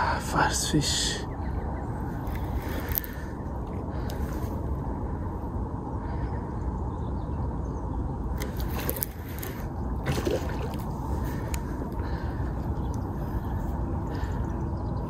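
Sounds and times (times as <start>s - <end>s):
steady low rumble: 0.0s - 15.0s
water sloshing: 8.6s - 11.6s.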